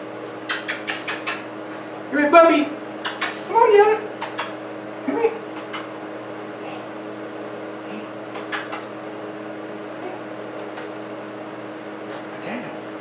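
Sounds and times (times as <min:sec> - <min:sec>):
low machine hum: 0:00.0 - 0:13.0
sharp clicks: 0:00.5 - 0:01.5, 0:03.0 - 0:03.4, 0:04.2 - 0:04.6, 0:05.6 - 0:06.1, 0:08.3 - 0:08.9.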